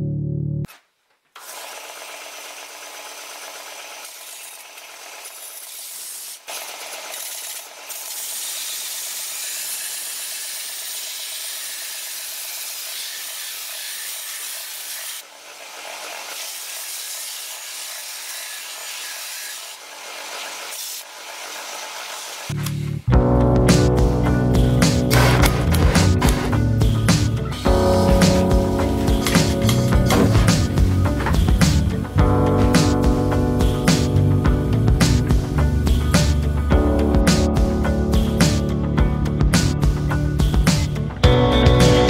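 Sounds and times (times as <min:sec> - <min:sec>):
belt sander grinding steel: 0:01.4 - 0:22.8.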